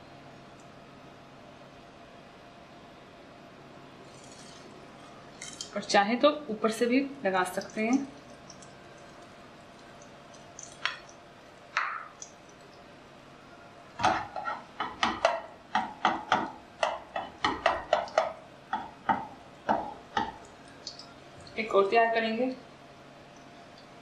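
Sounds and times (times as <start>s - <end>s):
spatula tapping in frying pan: 14.0s - 21.0s.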